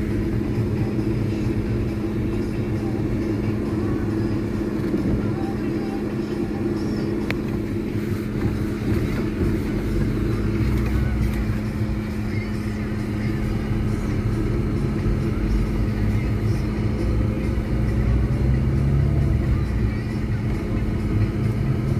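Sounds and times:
car engine and tyre drone: 0.0 - 21.9
constant low hum: 0.0 - 21.9.

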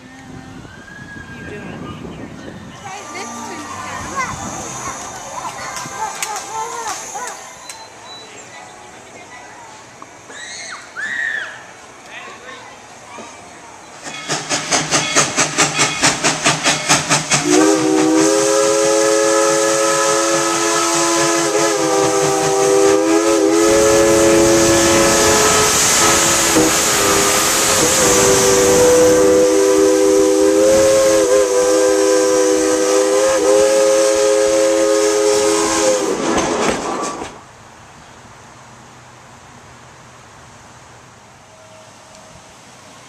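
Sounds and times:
steam hissing: 2.8 - 8.5, 13.9 - 37.4
steam locomotive chuffing: 2.8 - 8.6, 13.9 - 37.5
steam whistle chord: 17.3 - 36.2.

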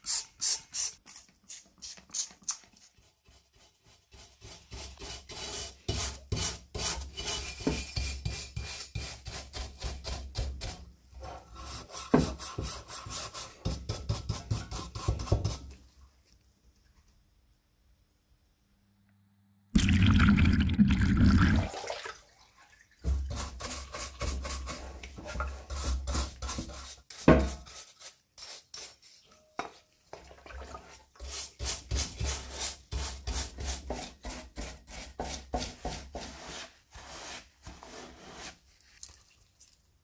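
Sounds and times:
brush scrubbing wet metal parts: 23.0 - 39.8.

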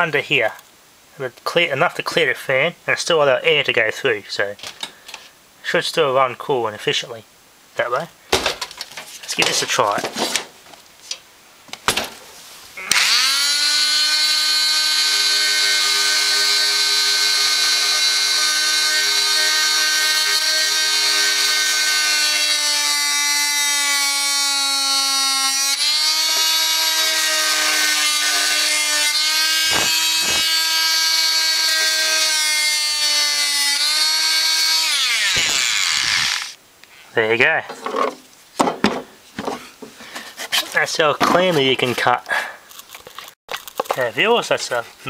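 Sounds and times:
oscillating tool cutting wood: 12.8 - 36.6.

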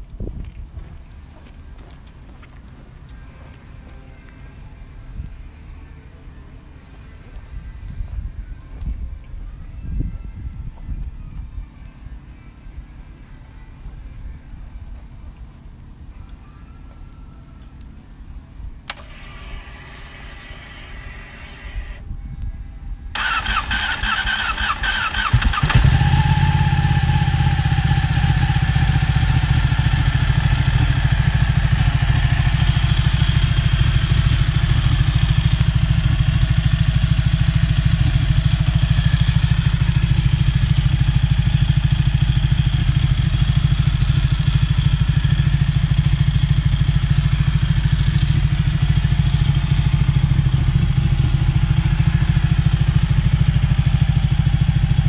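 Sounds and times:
motorcycle starter cranking: 18.9 - 22.0, 23.2 - 41.0
motorcycle engine idling: 23.2 - 55.0.

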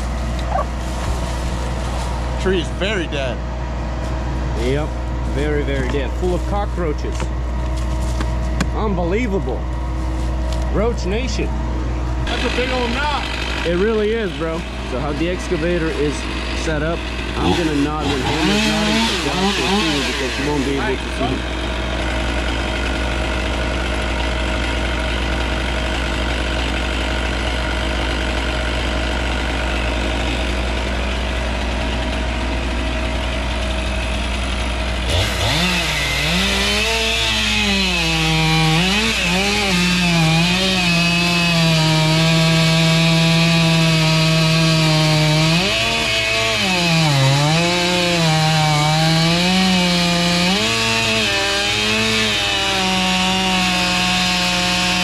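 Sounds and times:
engine drone: 0.0 - 55.0
chainsaw cutting wood: 12.2 - 55.0.

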